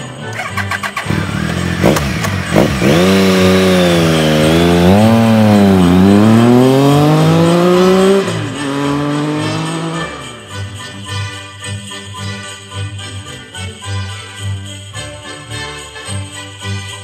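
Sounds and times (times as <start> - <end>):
motorcycle engine revving: 0.3 - 10.6
motorcycle accelerating away: 0.4 - 10.5.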